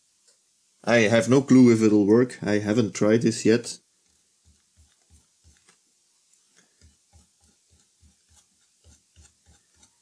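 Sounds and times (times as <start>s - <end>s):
brush scrubbing metal: 6.8s - 10.0s.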